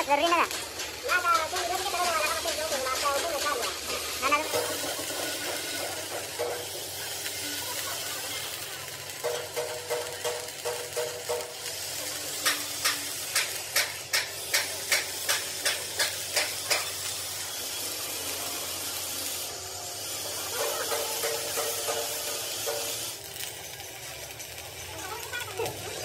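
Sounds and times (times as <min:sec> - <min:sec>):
steady hiss: 0:00.0 - 0:25.9
hammer striking steel: 0:00.5 - 0:07.2, 0:09.1 - 0:17.1, 0:20.3 - 0:23.4.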